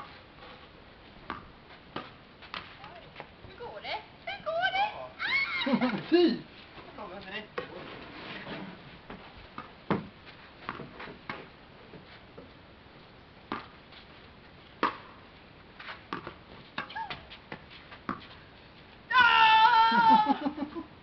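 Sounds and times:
tennis balls struck and bouncing: 1.2s - 3.0s, 9.5s - 11.5s, 13.5s - 13.8s, 14.8s - 15.2s, 16.1s - 18.4s.

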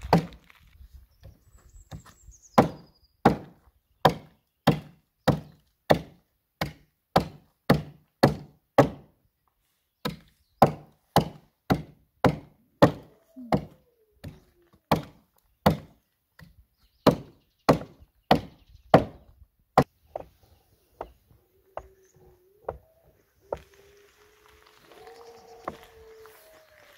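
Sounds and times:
axe chopping into log: 0.0s - 0.4s, 2.6s - 9.1s, 10.1s - 15.9s, 17.1s - 19.2s.

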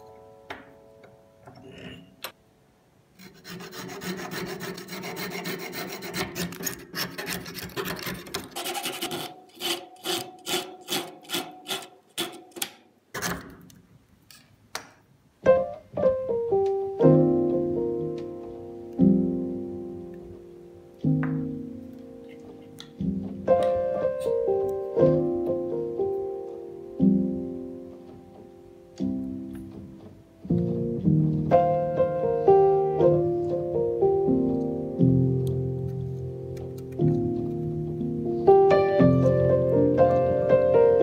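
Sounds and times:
piano music: 0.0s - 2.8s, 15.4s - 41.0s
abrasive block scraping wood: 3.2s - 13.4s.

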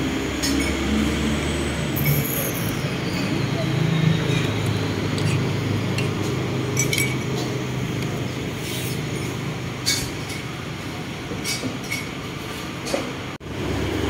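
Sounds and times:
tableware clinking: 2.0s - 2.9s, 4.2s - 10.5s, 11.4s - 12.2s.

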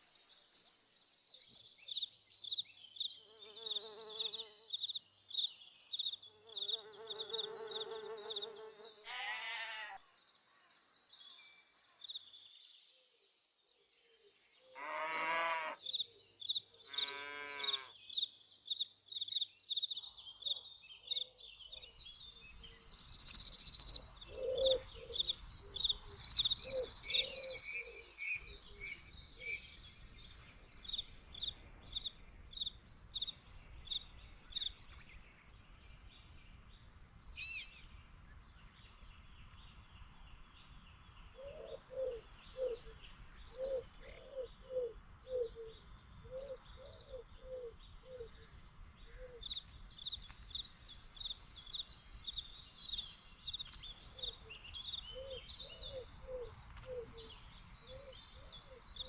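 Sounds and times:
small birds singing: 0.0s - 59.0s
livestock calls: 9.0s - 10.0s, 14.8s - 15.8s, 16.8s - 18.0s
pigeon cooing: 24.3s - 25.3s.

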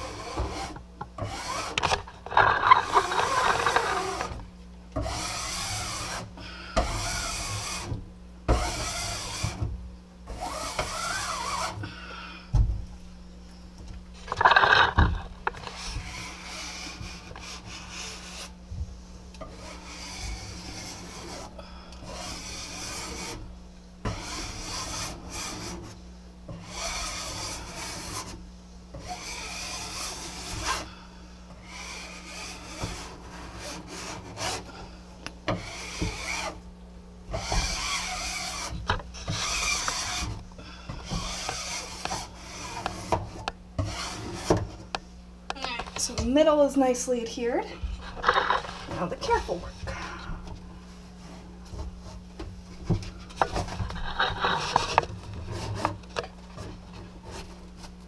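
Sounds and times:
scraper rubbing on vinyl: 0.0s - 4.4s, 5.1s - 9.7s, 10.3s - 11.8s, 14.2s - 18.6s, 19.5s - 23.4s, 24.1s - 28.4s, 29.0s - 31.0s, 31.6s - 34.8s, 35.6s - 36.6s, 37.4s - 40.4s, 41.0s - 44.9s, 48.0s - 49.6s, 51.0s - 58.0s.

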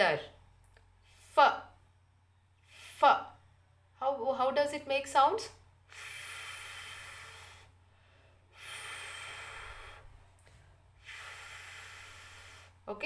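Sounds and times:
person making breathy f sound: 8.5s - 10.2s.

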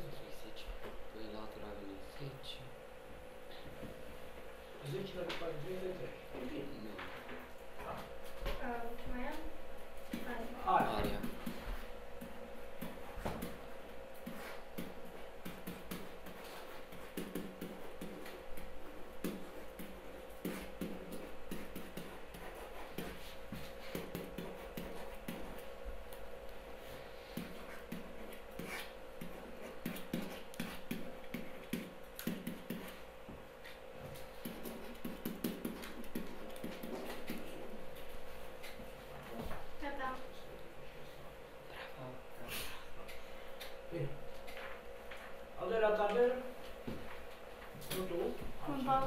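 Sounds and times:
steady low hum: 0.0s - 49.0s
stylus tapping and scratching: 10.1s - 26.3s, 27.3s - 33.1s, 33.7s - 38.1s.

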